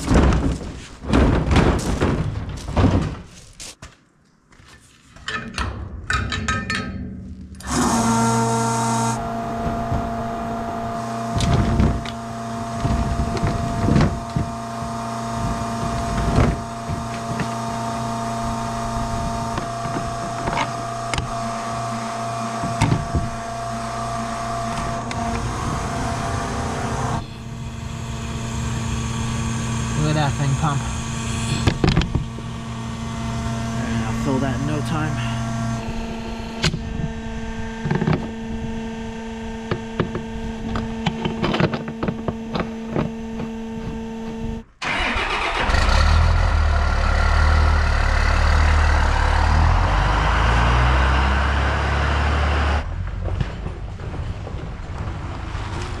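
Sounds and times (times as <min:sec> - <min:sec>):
thunks and knocks: 0:00.0 - 0:03.4
motor humming: 0:07.6 - 0:44.7.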